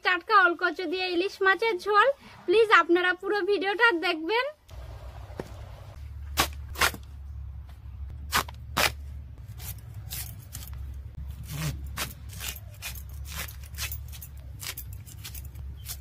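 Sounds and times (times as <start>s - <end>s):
blade scraping cuts: 11.3s - 16.0s.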